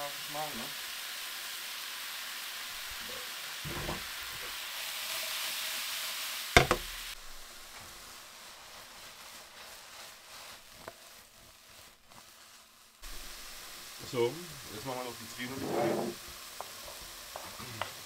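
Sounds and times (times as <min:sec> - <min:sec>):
mushrooms sizzling in frying pan: 0:00.0 - 0:18.0
pan knocking against hotplate: 0:06.6 - 0:06.9.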